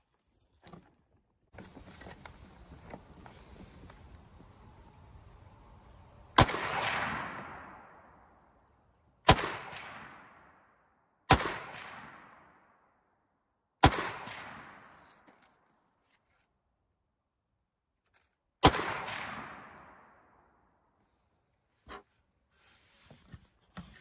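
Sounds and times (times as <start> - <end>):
rifle shots with echo: 6.4 - 8.5, 9.2 - 10.7, 11.3 - 12.8, 13.8 - 15.2, 18.6 - 20.5.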